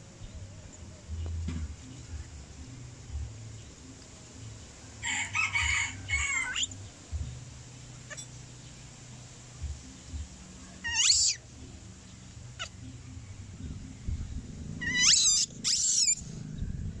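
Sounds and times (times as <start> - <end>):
baby monkey squealing: 6.1 - 6.7, 10.8 - 11.4, 14.8 - 16.2.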